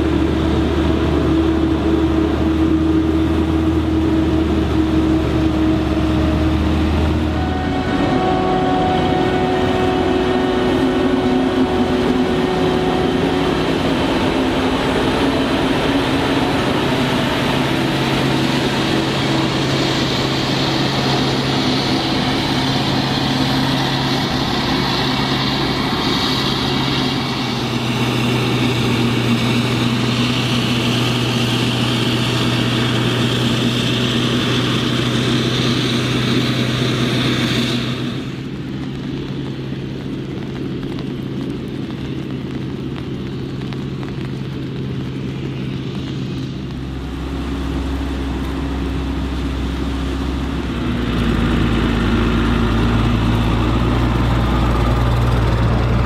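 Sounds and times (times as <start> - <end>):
distant machine drone: 0.0 - 56.0
tractor diesel engines: 0.0 - 56.0
running gear rumble: 38.3 - 56.0.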